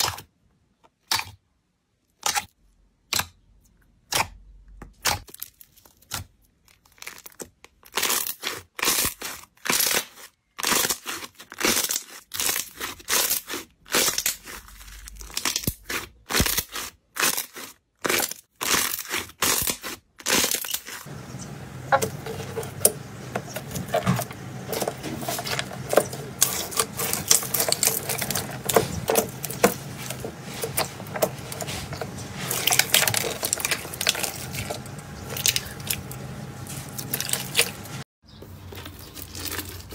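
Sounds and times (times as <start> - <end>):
slime crackling and popping: 5.0 - 21.0, 24.6 - 37.9
steady low hum: 21.1 - 38.1
slime squishing and clicking: 24.7 - 36.2.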